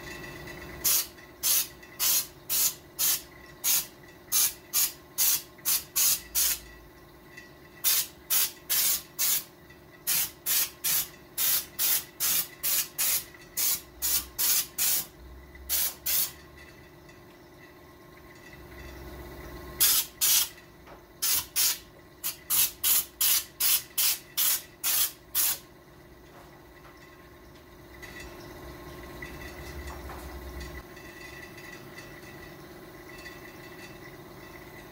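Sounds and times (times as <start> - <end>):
spray paint can hissing: 0.8 - 6.6, 7.8 - 15.1, 15.7 - 16.4, 19.8 - 20.6, 21.2 - 25.6.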